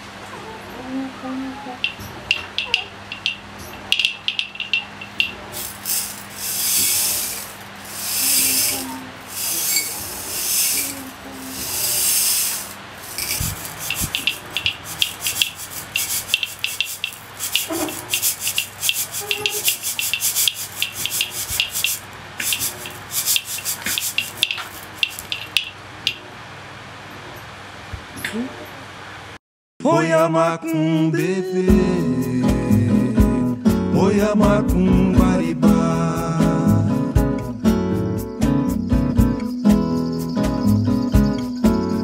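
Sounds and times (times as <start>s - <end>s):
tube shaker rattling: 1.8s - 26.2s.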